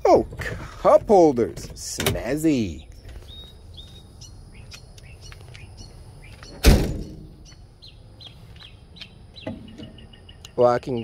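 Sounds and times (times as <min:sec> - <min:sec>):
birds chirping: 0:00.1 - 0:11.0
truck door slamming: 0:06.5 - 0:07.4.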